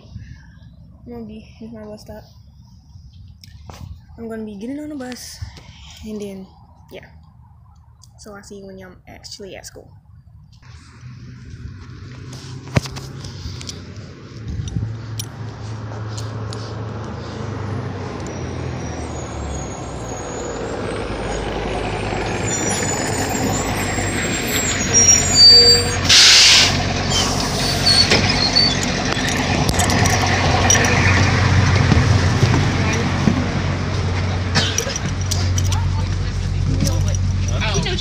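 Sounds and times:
bus engine rumbling: 0:00.0 - 0:38.0
brake squeaks: 0:10.5 - 0:38.0
air brakes hissing: 0:22.6 - 0:29.1.

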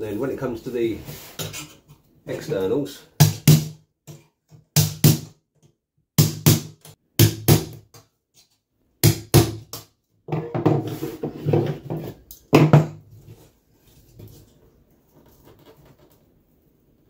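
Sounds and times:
hammer striking a metal punch: 0:06.2 - 0:07.8.

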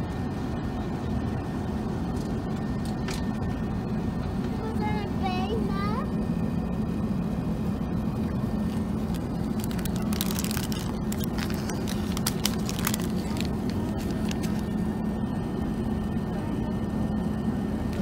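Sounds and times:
airplane cabin drone: 0:00.0 - 0:18.0
sandwich wrapper crinkling: 0:08.6 - 0:14.8.

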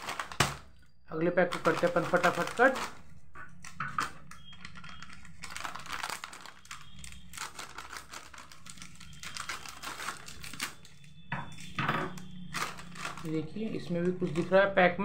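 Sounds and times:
plastic packet crinkling: 0:00.0 - 0:00.8, 0:01.4 - 0:14.5.

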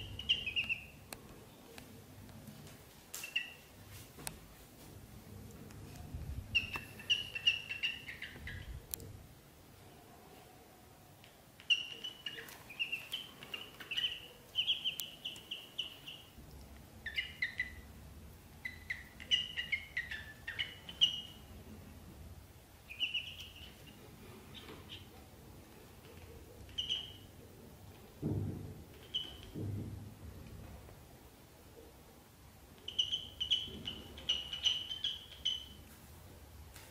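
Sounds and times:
ducklings peeping: 0:00.0 - 0:01.0, 0:06.5 - 0:08.8, 0:11.6 - 0:16.4, 0:17.0 - 0:17.9, 0:18.6 - 0:21.5, 0:22.8 - 0:25.1, 0:26.6 - 0:27.4, 0:28.9 - 0:29.6, 0:32.8 - 0:35.8.

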